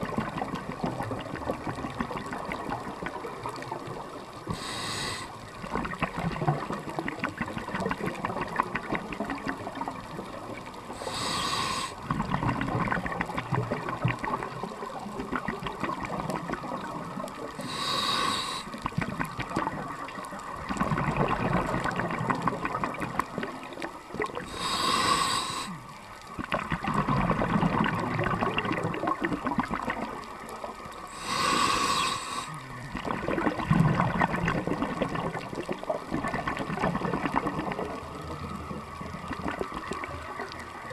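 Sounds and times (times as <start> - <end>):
exhaled bubbles rushing: 0.0 - 4.3, 5.6 - 24.6, 26.4 - 40.9
faint crackle: 0.0 - 40.9
regulator inhale hiss: 4.5 - 5.5, 10.9 - 12.0, 17.6 - 18.8, 24.4 - 26.0, 31.1 - 32.8.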